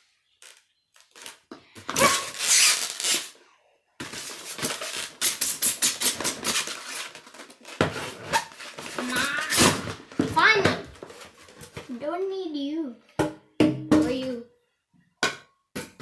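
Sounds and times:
polystyrene crackling and rubbing: 0.0s - 3.4s, 4.0s - 10.0s
packaging tearing: 2.0s - 3.4s, 4.1s - 10.0s.

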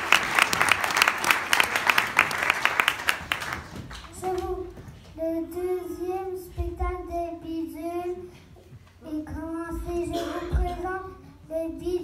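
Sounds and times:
children singing: 9.4s - 10.9s.

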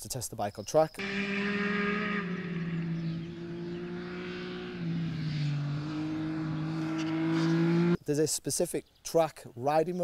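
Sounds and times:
motorcycle engine at high revs: 1.0s - 8.0s.

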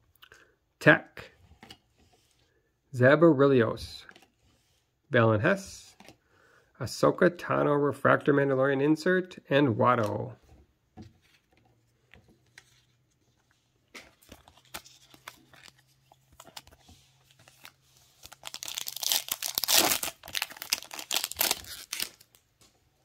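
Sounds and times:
card pack wrapper tearing and crinkling: 14.0s - 22.4s.

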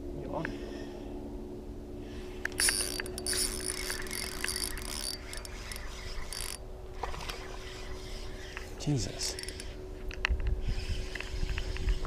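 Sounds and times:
steady low hum: 0.0s - 12.0s
fishing line hissing off reel: 2.1s - 6.6s, 7.2s - 9.8s.

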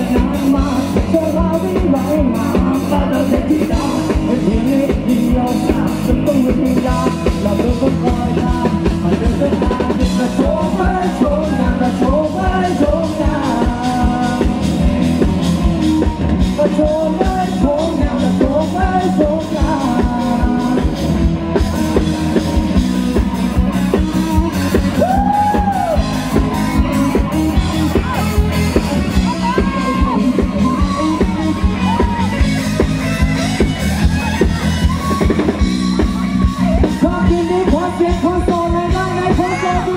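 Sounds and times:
electric guitar bending notes: 0.0s - 39.9s
live rock band: 0.0s - 39.9s.

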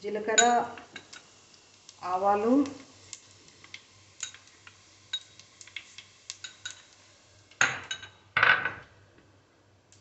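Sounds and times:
seeds popping in hot oil: 0.0s - 8.4s
faint oil sizzle: 0.0s - 10.0s.

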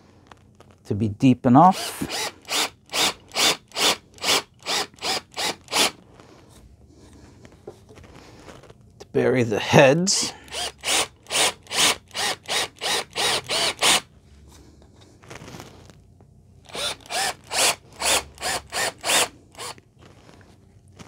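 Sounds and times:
cordless drill trigger pulses: 1.6s - 6.0s, 10.4s - 14.1s, 16.7s - 19.8s.

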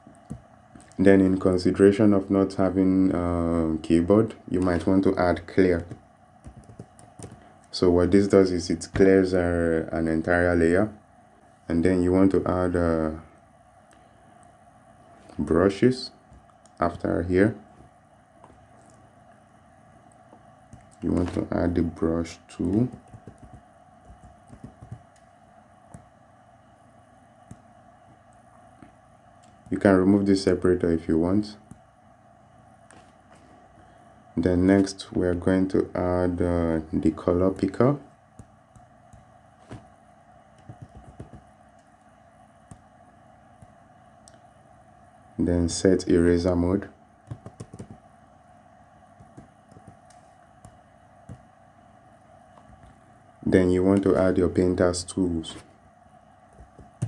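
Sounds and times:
faint steady hum: 0.0s - 57.0s
typing taps on tablet: 5.9s - 7.4s, 22.7s - 25.2s, 40.6s - 41.5s, 47.3s - 48.0s, 49.2s - 51.4s.

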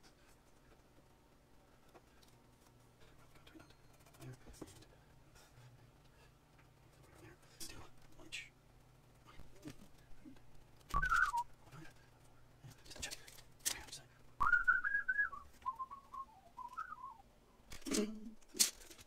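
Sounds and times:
man whistling a tune: 11.0s - 11.4s, 14.4s - 17.2s.

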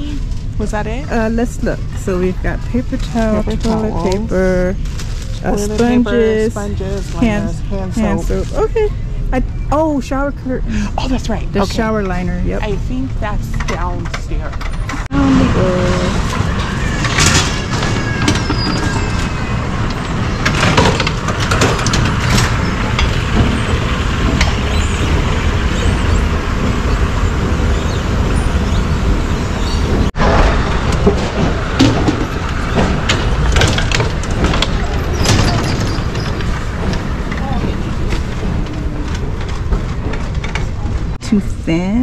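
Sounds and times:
escalator rumbling: 0.0s - 42.0s
shopping cart clattering: 29.6s - 41.2s.

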